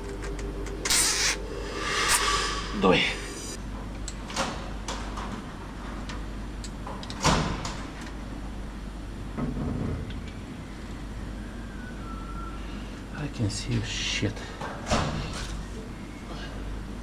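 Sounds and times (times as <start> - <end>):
steady low hum: 0.0 - 6.8.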